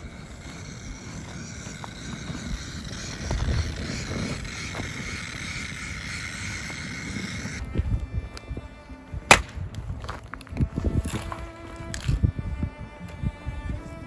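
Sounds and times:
wood crackling: 0.0 - 7.7, 9.2 - 12.2
gas torch hissing: 0.0 - 7.8.

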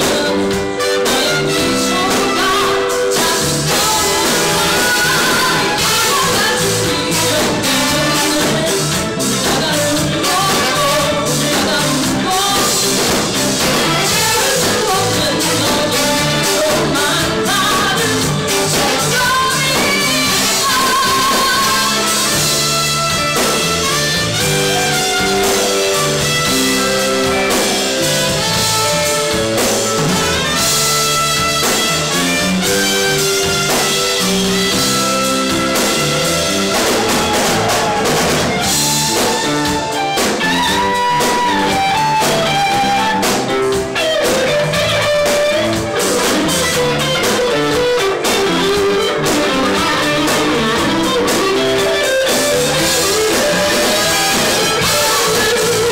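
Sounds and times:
woman singing: 0.0 - 23.2
drum kit: 0.0 - 55.9
electric guitar: 0.0 - 55.9.

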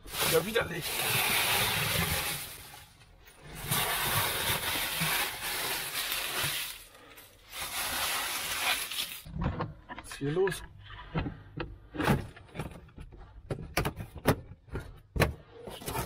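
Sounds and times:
dry leaves rustling and crackling: 0.0 - 3.0, 3.6 - 9.3.

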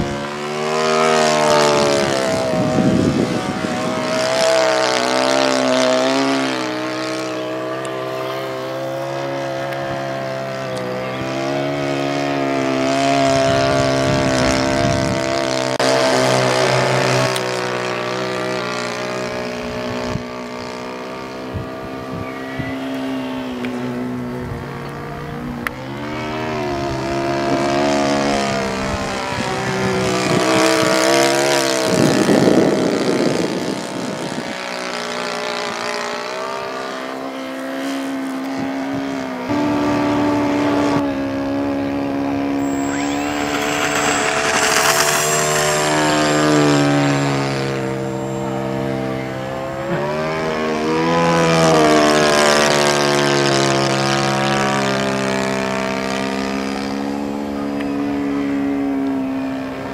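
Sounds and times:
model airplane engine passing: 42.5 - 49.7.

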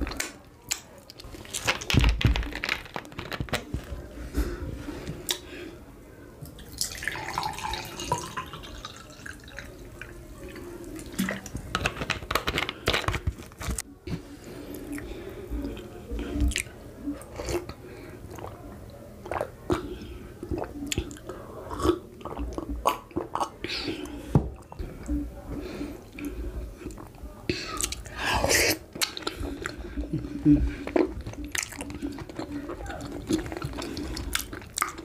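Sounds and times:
wet chewing and swallowing: 14.8 - 25.2, 26.0 - 35.0.

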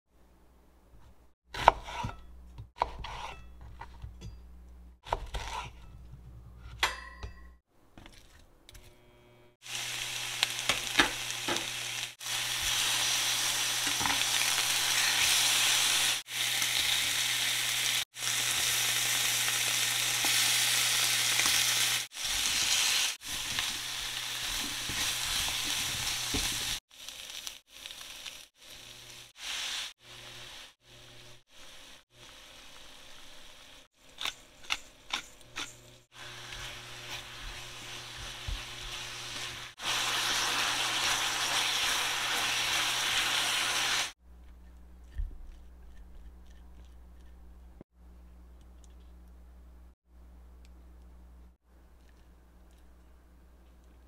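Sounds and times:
meat sizzling in a frying pan: 9.6 - 30.7, 36.2 - 44.2.

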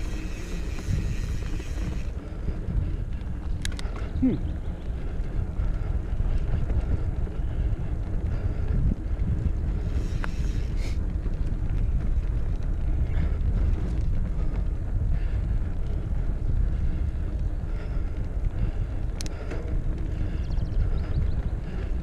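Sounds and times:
faint ticks and rattles: 0.0 - 22.0
mountain bike rolling on dirt: 0.0 - 22.0
wind buffeting microphone: 0.0 - 22.0.

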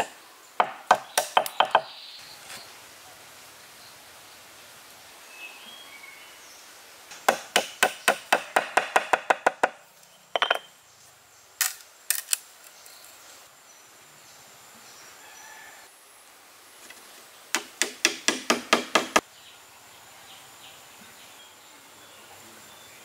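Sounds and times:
hand tool sharp strikes: 7.2 - 9.7.

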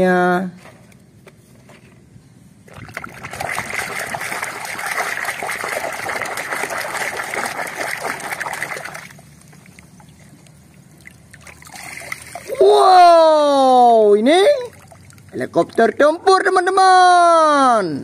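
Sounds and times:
water sloshing in plastic tub: 2.7 - 12.5.

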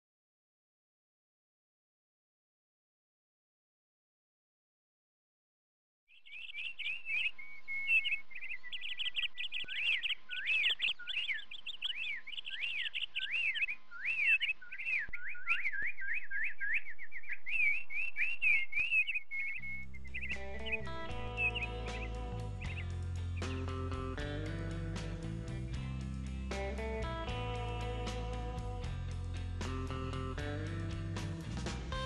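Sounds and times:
songbird whistled chirps: 6.1 - 23.8.

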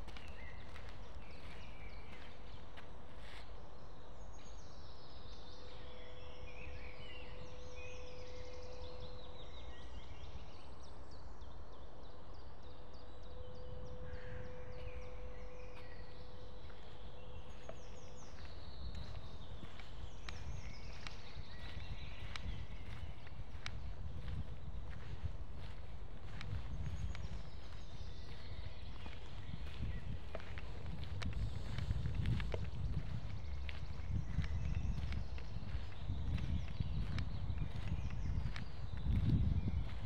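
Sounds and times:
faint steady hum: 0.0 - 40.0
songbirds singing: 0.0 - 40.0
steady low rumble: 13.5 - 40.0.

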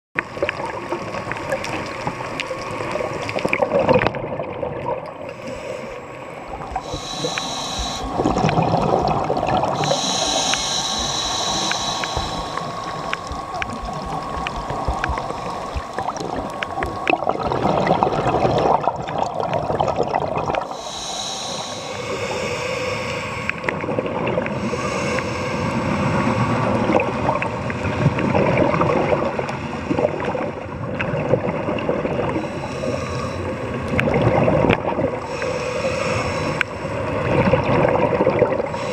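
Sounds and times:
underwater exhaust bubbles: 0.2 - 38.9
scuba regulator breathing: 5.3 - 16.9, 20.6 - 23.8, 24.5 - 26.8, 32.3 - 34.1, 35.1 - 37.5, 38.5 - 38.9.

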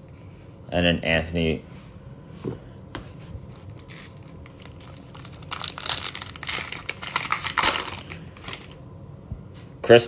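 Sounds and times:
plastic wrapper crinkling: 3.6 - 8.8.

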